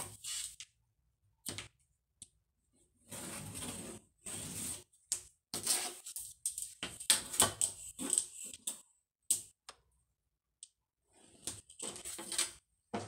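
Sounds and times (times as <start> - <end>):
ruler scraping on table: 3.1 - 4.9, 5.6 - 6.1.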